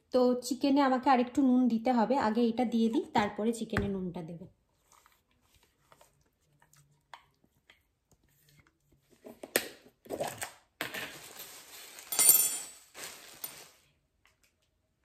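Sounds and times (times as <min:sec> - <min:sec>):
plastic tub clattering and crinkling: 0:09.1 - 0:13.8.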